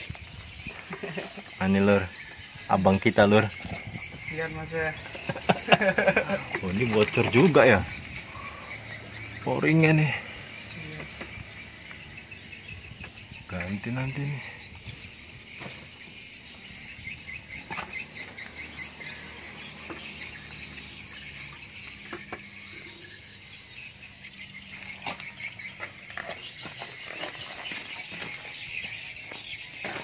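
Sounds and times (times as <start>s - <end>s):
insects chirring: 0.0s - 30.0s
scattered clicks and knocks: 22.0s - 22.6s.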